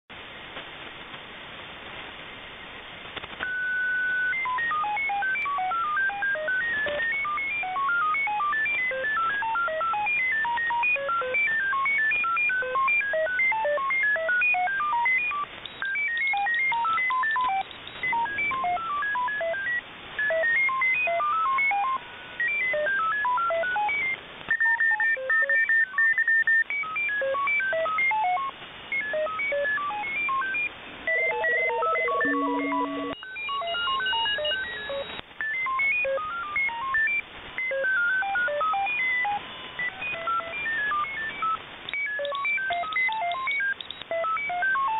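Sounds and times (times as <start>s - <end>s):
radio static hiss: 0.1s - 44.1s
short beeps jumping in pitch: 3.5s - 44.9s
steady carrier tone: 31.0s - 34.8s.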